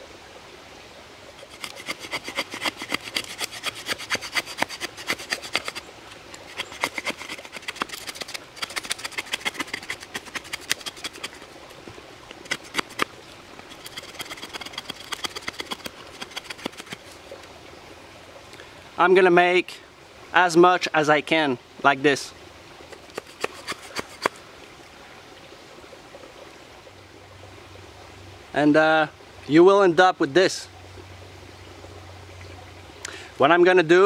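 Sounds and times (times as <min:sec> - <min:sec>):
knife scraping wooden stick: 0:01.4 - 0:11.6, 0:12.4 - 0:13.1, 0:13.7 - 0:17.2, 0:22.9 - 0:24.4.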